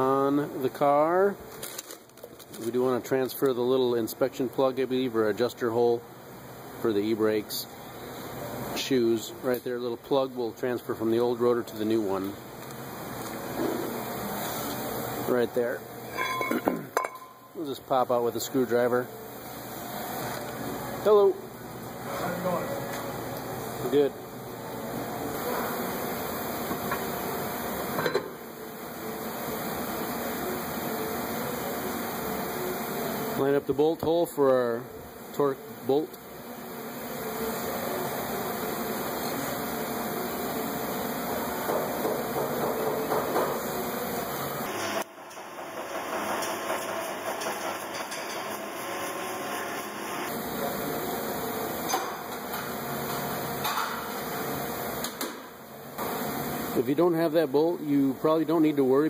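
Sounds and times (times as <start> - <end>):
mechanical hum: 0.0 - 59.0
steady hissing background: 2.6 - 45.4, 47.9 - 59.0.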